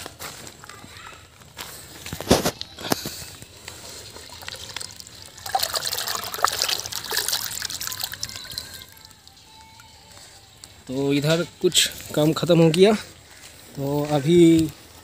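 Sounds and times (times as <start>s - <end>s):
water dripping: 3.7s - 9.4s
water splashing: 3.8s - 9.1s.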